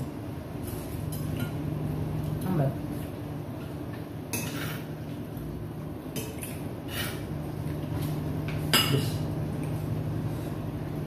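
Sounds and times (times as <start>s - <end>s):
low steady hum: 0.0s - 11.0s
cutlery clinking on plates: 8.5s - 9.2s.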